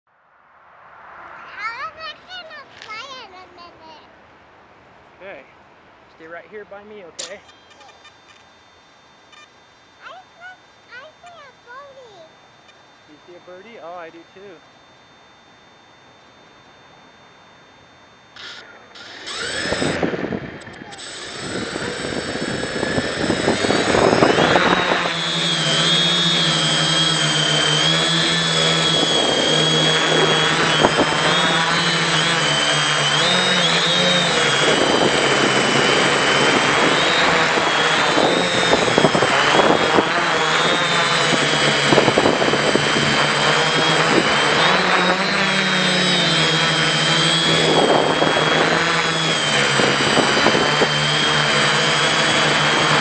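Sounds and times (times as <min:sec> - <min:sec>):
quadcopter motors whining: 0:01.1 - 0:04.3, 0:06.1 - 0:53.0.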